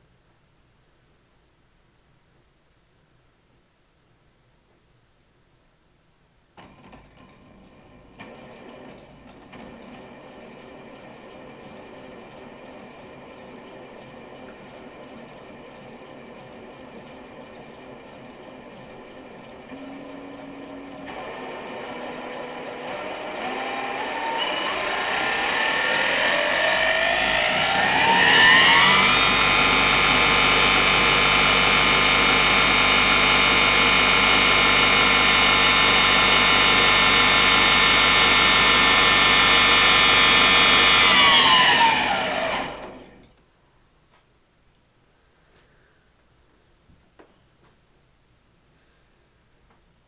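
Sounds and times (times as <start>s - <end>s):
electric motor whine: 19.6s - 43.2s.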